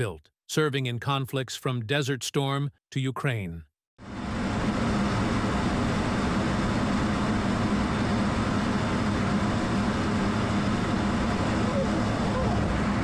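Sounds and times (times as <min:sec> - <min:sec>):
jet engine and rushing air: 0:04.0 - 0:13.0
low hum: 0:04.0 - 0:13.0.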